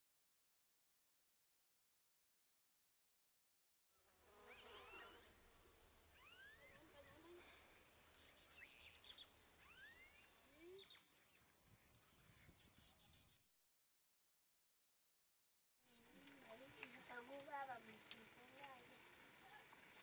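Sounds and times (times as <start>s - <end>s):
insects droning: 4.0s - 11.8s, 15.9s - 20.0s
rising bird chirps: 4.0s - 13.5s.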